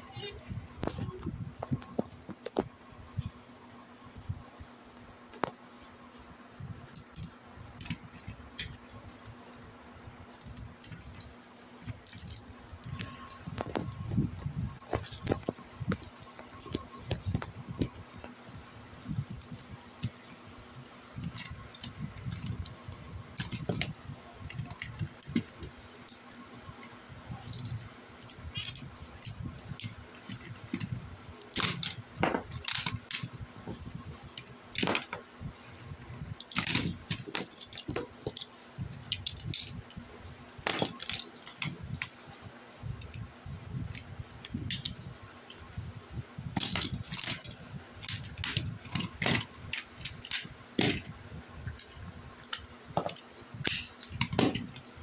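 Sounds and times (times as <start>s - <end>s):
plastic toy parts clicking: 6.9s - 8.8s, 10.4s - 14.1s, 23.4s - 26.4s, 27.4s - 33.4s, 36.4s - 38.5s, 39.1s - 40.0s, 40.6s - 42.2s, 43.9s - 45.7s, 46.6s - 51.1s, 51.7s - 54.9s.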